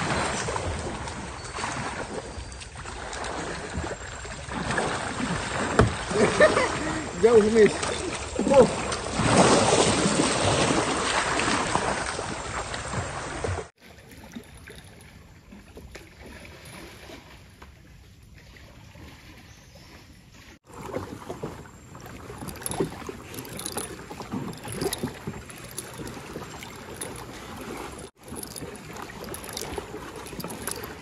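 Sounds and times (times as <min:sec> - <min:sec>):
paddle splashing in water: 0:00.0 - 0:06.8, 0:07.7 - 0:17.6, 0:18.4 - 0:31.0
water dripping: 0:22.0 - 0:31.0.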